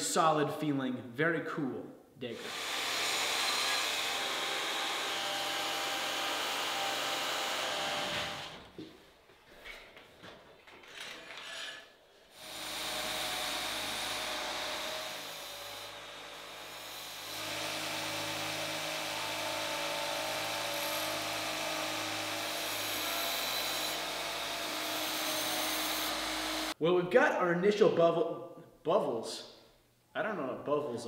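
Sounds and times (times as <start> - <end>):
belt grinder grinding steel blade: 11.4 - 26.8.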